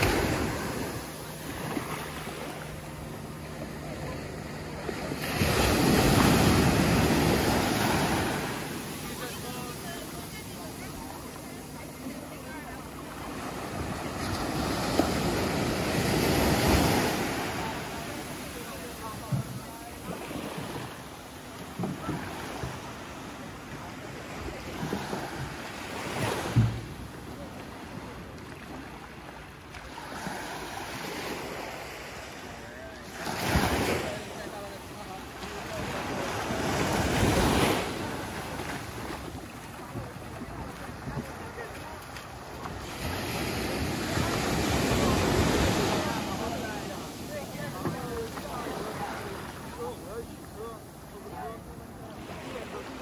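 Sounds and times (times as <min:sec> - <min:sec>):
wave breaking on sand: 0:00.0 - 0:03.2, 0:04.9 - 0:11.9
low wash of water: 0:00.0 - 0:53.0
wave breaking: 0:00.0 - 0:53.0.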